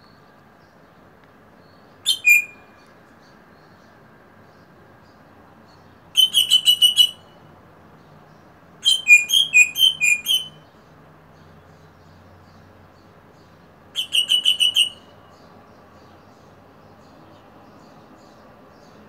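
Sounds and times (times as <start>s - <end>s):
bird piping whistles: 2.0s - 2.8s, 6.2s - 7.3s, 8.8s - 10.7s, 14.0s - 15.2s.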